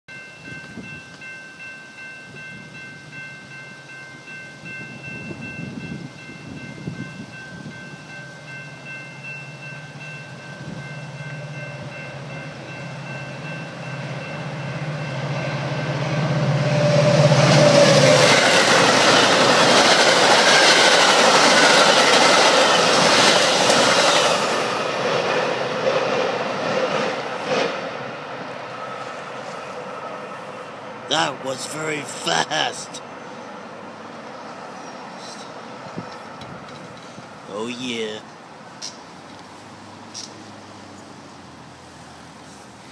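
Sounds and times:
train wheels rushing on rails: 0:04.6 - 0:37.4.

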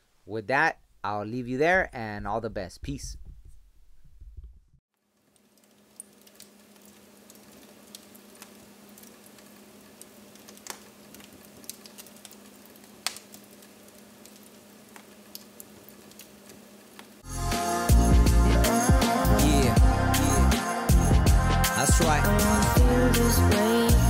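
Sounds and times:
campfire crackling and popping: 0:05.2 - 0:17.2
soft fire hiss: 0:05.2 - 0:17.8.

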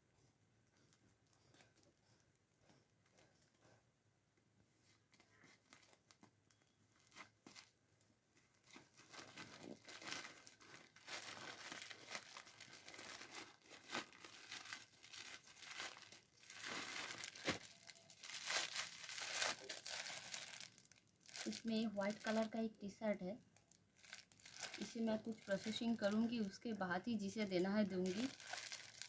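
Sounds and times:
plastic packaging crinkling and tearing: 0:05.1 - 0:07.8, 0:08.4 - 0:22.6, 0:23.6 - 0:29.0.

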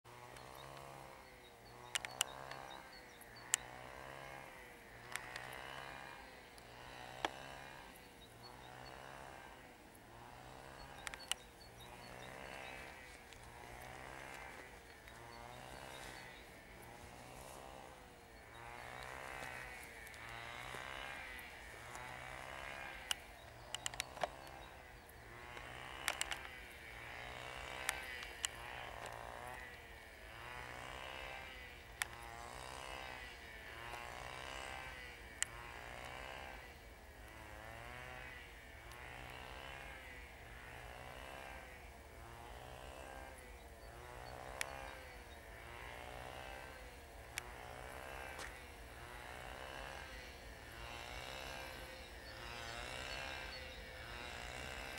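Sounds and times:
distant diesel locomotive engine: 0:00.1 - 0:54.9
sharp clicks: 0:00.2 - 0:03.7, 0:05.0 - 0:05.9, 0:10.6 - 0:29.8, 0:32.0 - 0:34.0.

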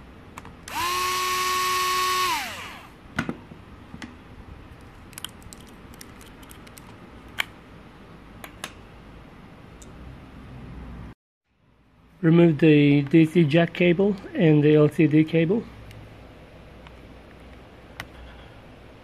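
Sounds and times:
electric screwdriver spinning: 0:00.7 - 0:02.9.

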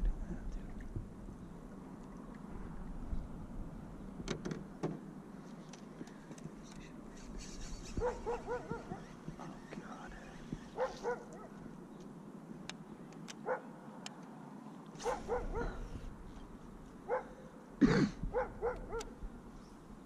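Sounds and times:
dog yipping and whining: 0:07.9 - 0:09.6.

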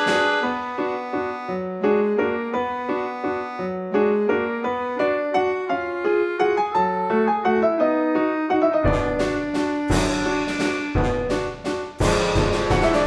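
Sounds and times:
melody of quick even notes: 0:00.0 - 0:01.6, 0:08.6 - 0:13.0.

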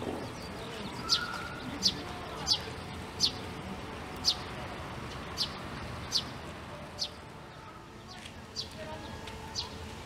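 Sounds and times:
bird calling high sharp notes: 0:01.0 - 0:03.5.

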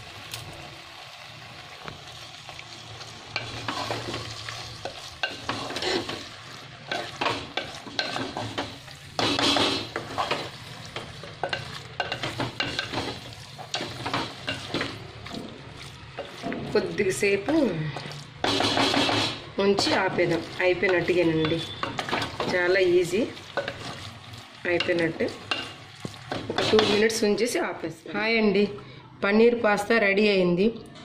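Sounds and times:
frying sizzle: 0:00.0 - 0:27.3.

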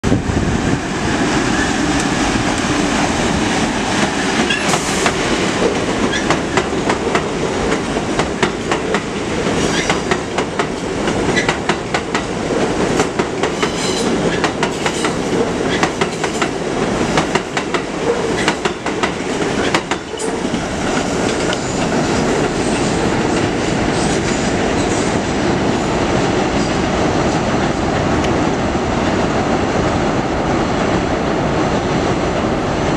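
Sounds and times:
subway train passing: 0:00.0 - 0:32.9
wheels clacking over rail joints: 0:03.5 - 0:25.2.

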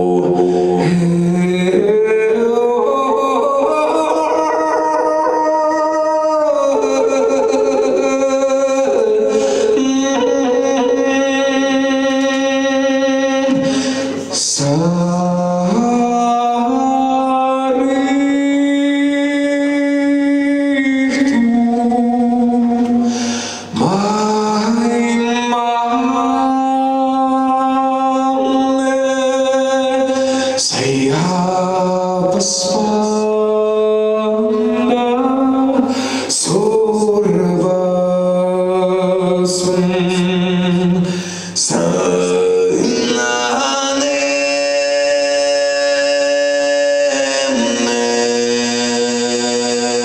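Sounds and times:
man throat singing: 0:00.0 - 0:50.0.

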